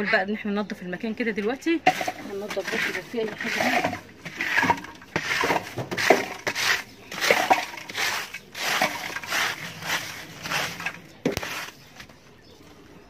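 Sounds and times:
broom sweeping dirt floor: 2.0 - 12.1.

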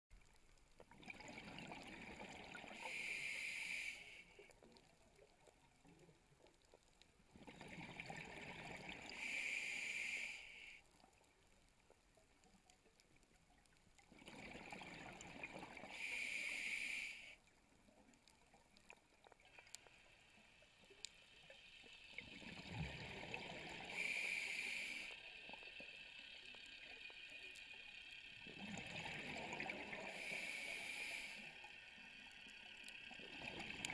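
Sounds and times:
exhaled bubbles underwater: 0.9 - 3.0, 7.3 - 9.4, 14.0 - 16.3, 22.1 - 24.4, 28.4 - 31.1, 33.0 - 33.9
scuba regulator hiss: 2.8 - 4.4, 9.1 - 10.8, 15.9 - 17.4, 23.8 - 25.2, 30.1 - 31.6.

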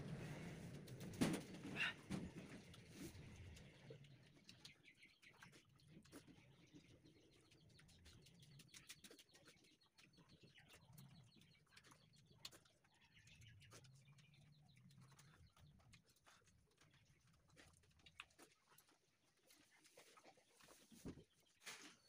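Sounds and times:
chewing: 1.8 - 22.0.

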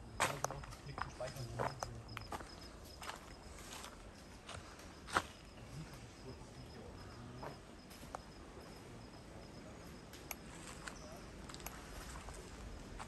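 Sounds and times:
insects trilling: 0.0 - 13.0
sharp clicks: 10.1 - 11.8.

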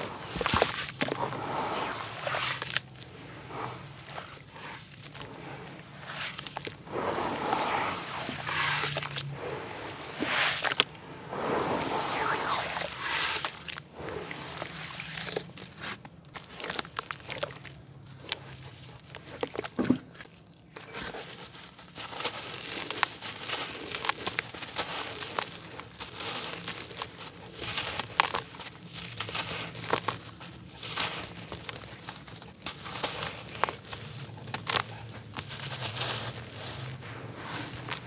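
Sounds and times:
dirt crumbling into water: 0.0 - 20.5.

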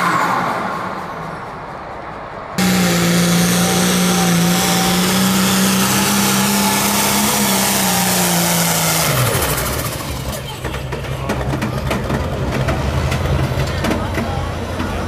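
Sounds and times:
engine high-revving drone: 2.4 - 10.5.

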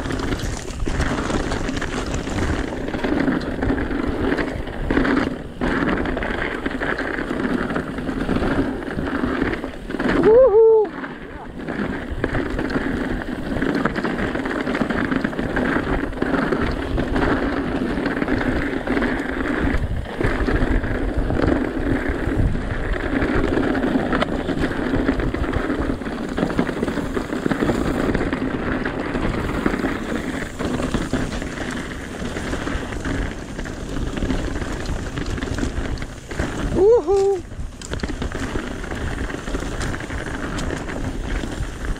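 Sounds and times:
bike rattling: 0.0 - 41.9
tyres crackling over gravel: 0.0 - 41.9
wind buffeting microphone: 0.0 - 41.9.

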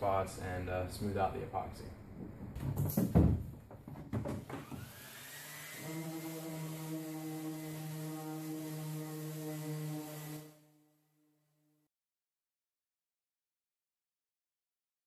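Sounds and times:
orbital sander whining: 4.7 - 10.5.

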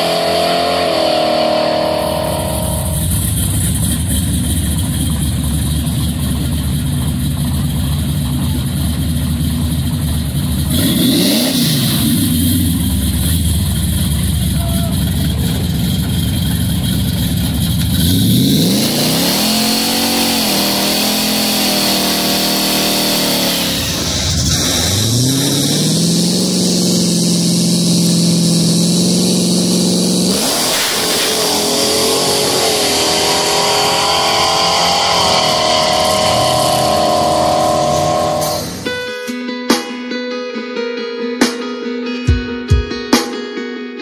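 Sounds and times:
pickup engine revving hard: 0.0 - 5.1, 10.6 - 14.6, 17.4 - 38.9.

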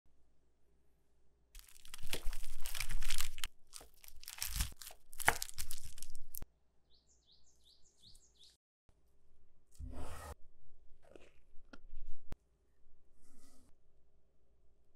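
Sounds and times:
crisp flatbread crunching: 1.6 - 6.4.

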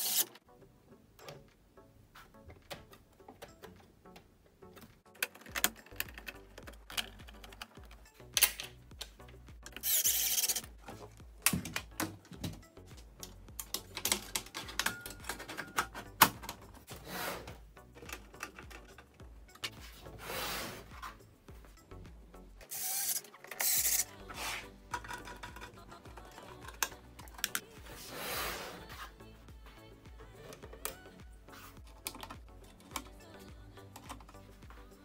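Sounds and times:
screws coming out noisy bursts: 9.8 - 10.6, 22.7 - 24.7
metallic clicks and knocks: 11.4 - 16.9, 24.9 - 27.7.

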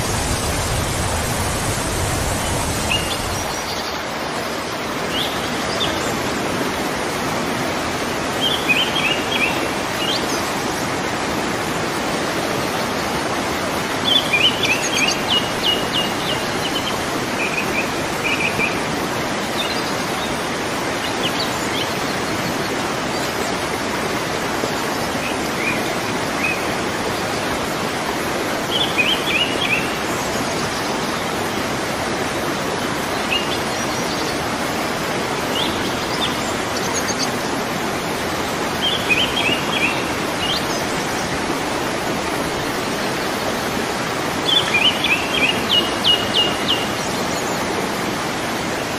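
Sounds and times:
small birds chirping: 0.0 - 4.0
waterfall rushing: 0.0 - 48.9.

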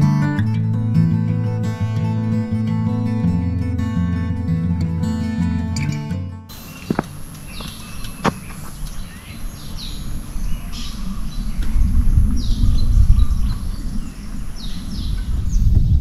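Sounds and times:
birds chirping: 6.5 - 16.0
wind rumble on microphone: 8.4 - 16.0.

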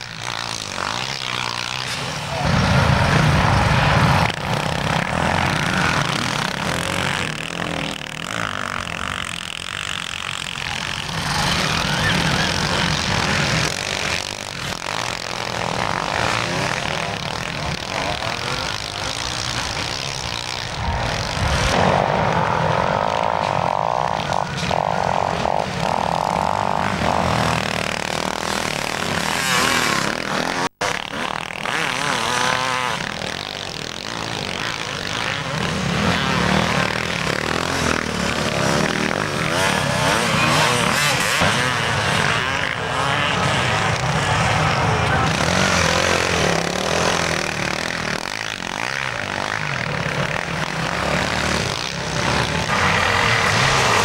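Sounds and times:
motorcycle engines revving: 0.0 - 54.0.

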